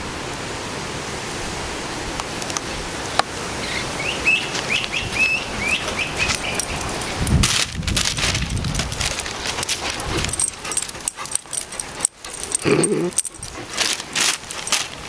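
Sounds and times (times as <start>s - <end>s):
dogs scuffling and jingling: 5.8s - 15.0s
low dog vocalization: 9.6s - 14.2s.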